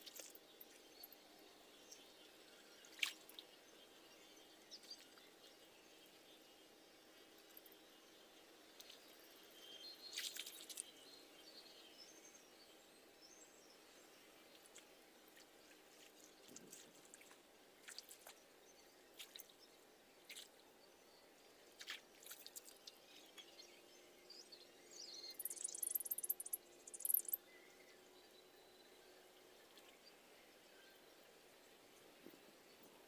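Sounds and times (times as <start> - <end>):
splashing shallow water: 15.9 - 18.4.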